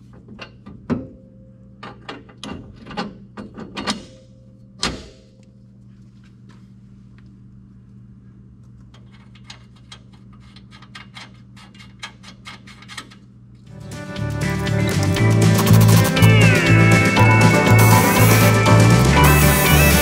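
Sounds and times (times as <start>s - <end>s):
ratchet wrench clicking: 14.9s - 16.4s.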